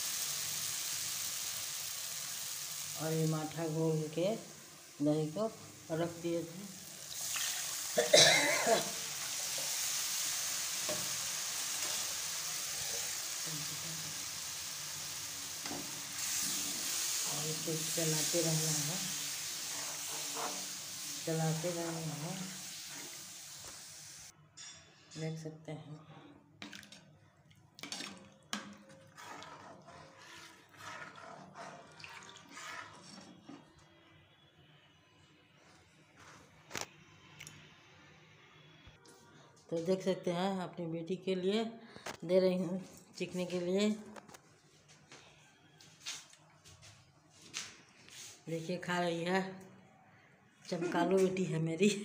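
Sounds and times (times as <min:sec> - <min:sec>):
oil sizzling in a pan: 0:00.0 - 0:24.3
liquid poured into hot oil: 0:06.8 - 0:08.0
spatula stirring in a pan: 0:08.8 - 0:23.8, 0:27.8 - 0:33.8
ladle stirring thick curry: 0:27.8 - 0:33.8.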